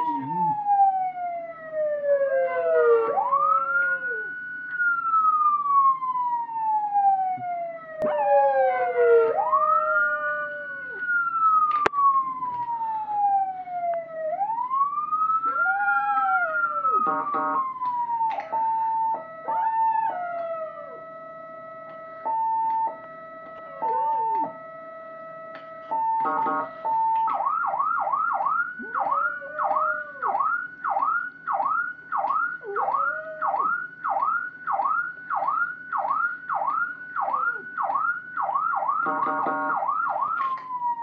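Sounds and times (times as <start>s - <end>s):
emergency vehicle siren wailing: 0.0s - 41.0s
dog howling: 2.2s - 4.4s, 8.0s - 11.1s, 15.4s - 17.1s, 23.6s - 24.6s, 28.8s - 30.4s, 32.6s - 33.8s.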